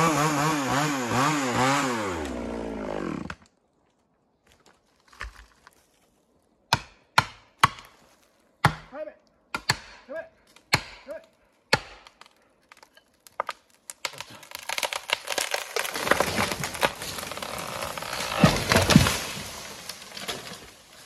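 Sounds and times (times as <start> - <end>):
hatchet chopping tree: 6.7 - 8.0, 8.6 - 8.9, 9.5 - 19.3
tree cracking and snapping: 11.7 - 21.0
tree thudding on ground: 13.4 - 20.8.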